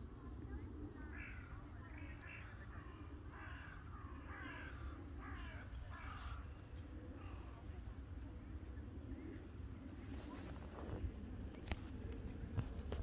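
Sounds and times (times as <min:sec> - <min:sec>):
steady low rumble: 0:00.0 - 0:13.0
crows cawing: 0:01.1 - 0:07.6.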